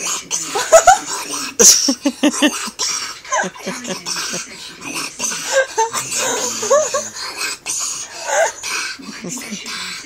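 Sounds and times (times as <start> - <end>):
boy laughing: 0.6 - 4.4, 5.4 - 7.2.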